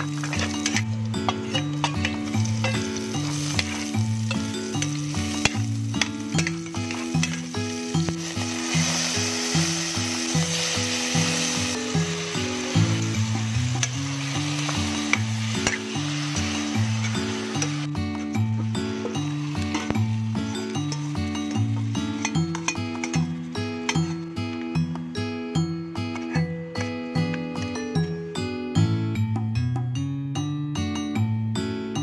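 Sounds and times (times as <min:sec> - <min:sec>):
metal spoon scraping pot: 0:00.0 - 0:07.5, 0:19.6 - 0:24.3
oil sizzling in pot: 0:00.0 - 0:24.2.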